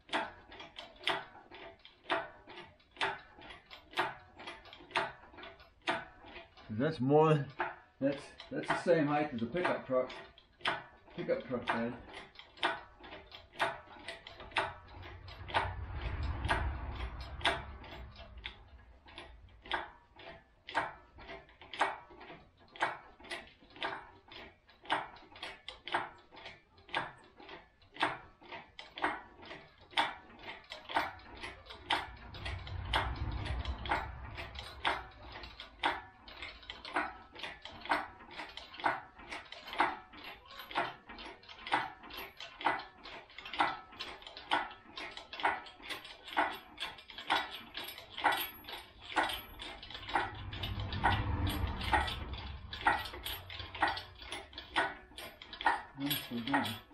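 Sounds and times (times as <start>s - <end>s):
low rumble: 14.0s - 20.7s, 31.0s - 37.3s, 48.5s - 55.3s.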